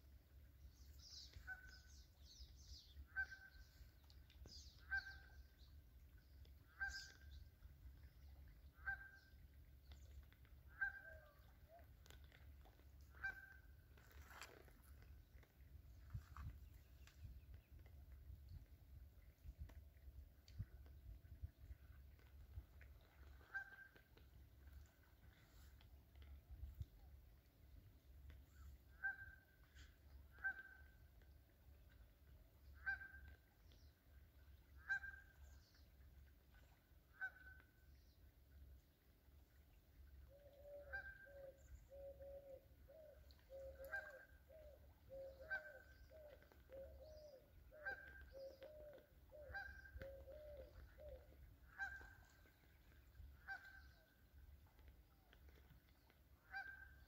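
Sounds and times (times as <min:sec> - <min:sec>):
faint ticks: 0:03.9 - 0:04.9, 0:09.2 - 0:10.7, 0:45.5 - 0:56.8.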